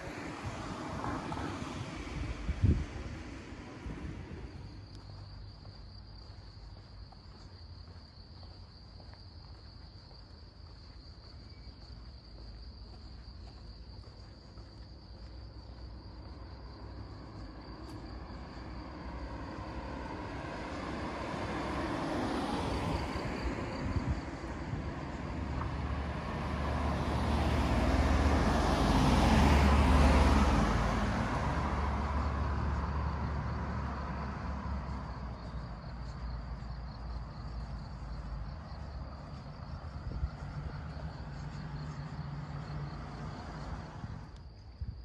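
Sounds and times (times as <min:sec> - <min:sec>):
car passing on road: 0:00.0 - 0:45.0.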